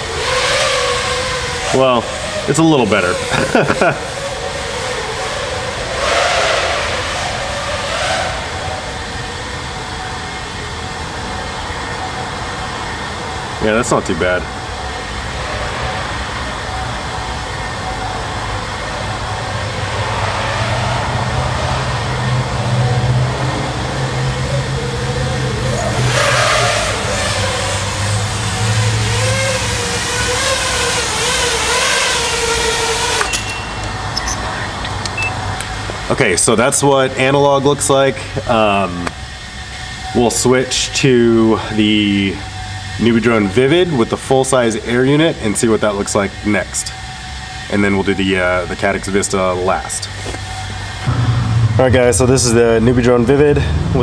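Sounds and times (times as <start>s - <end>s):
drone propellers whirring: 0.0s - 54.0s
steady low rumble: 51.0s - 54.0s.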